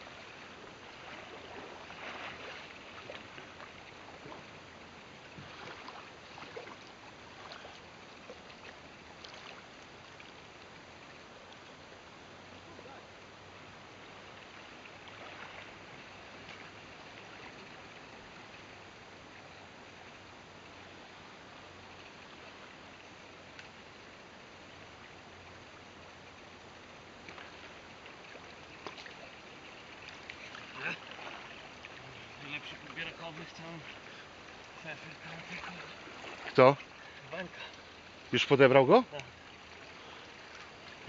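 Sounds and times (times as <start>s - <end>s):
river water flowing: 0.0s - 41.0s.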